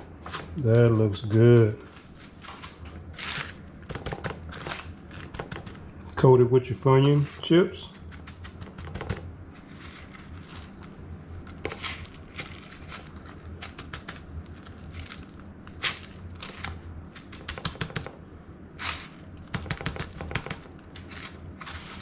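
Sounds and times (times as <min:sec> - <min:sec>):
chip crumbs crunching: 0:02.4 - 0:05.8, 0:07.0 - 0:18.0, 0:18.8 - 0:22.0.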